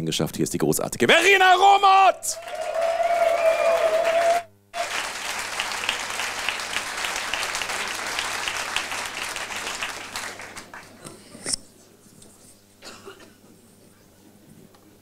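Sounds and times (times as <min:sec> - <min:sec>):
audience applauding: 0:02.3 - 0:11.0.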